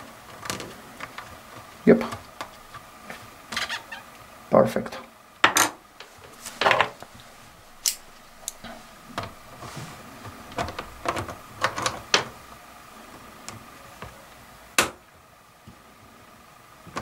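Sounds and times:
sharp metal snap: 0:07.8 - 0:08.6.

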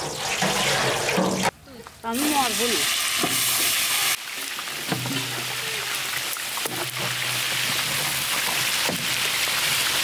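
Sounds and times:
onions sizzling in oil: 0:02.2 - 0:10.0.

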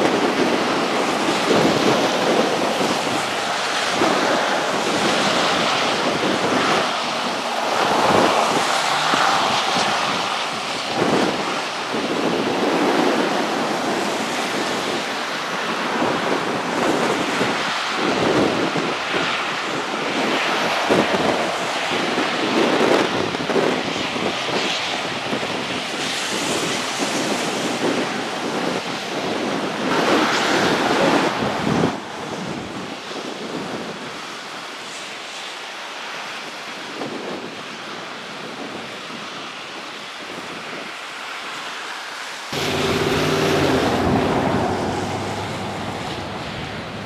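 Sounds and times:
wind buffeting microphone: 0:00.0 - 0:35.0, 0:42.5 - 0:47.0.

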